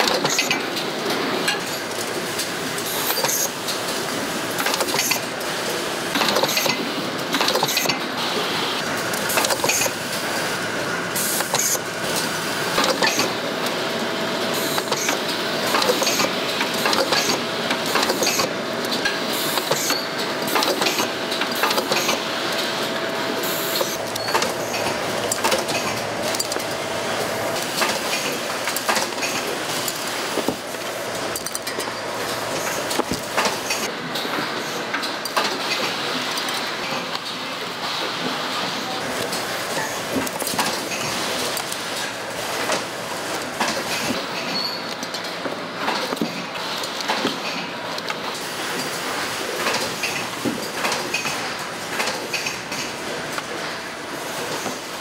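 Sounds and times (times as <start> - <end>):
machinery clattering: 23.5 - 33.9.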